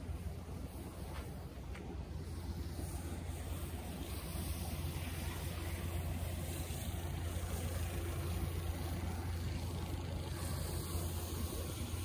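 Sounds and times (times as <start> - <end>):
snowplow engine running: 0.0 - 12.0.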